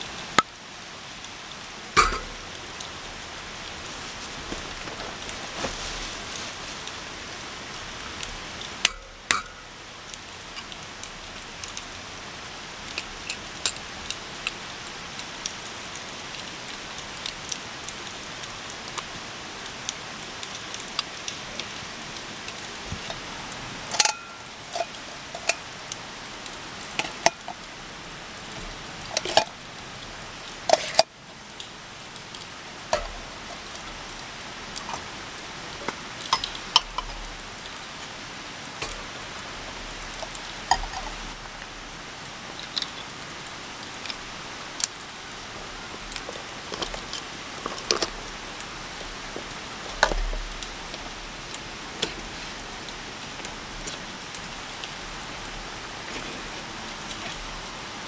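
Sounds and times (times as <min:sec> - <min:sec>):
steady rain falling: 0:00.0 - 0:58.0
sharp drips and taps: 0:01.2 - 0:05.8, 0:08.1 - 0:12.1, 0:12.8 - 0:29.6, 0:30.6 - 0:38.1, 0:38.7 - 0:41.6, 0:42.5 - 0:45.1, 0:45.9 - 0:57.8
cookware and cups knocking: 0:02.0 - 0:02.4.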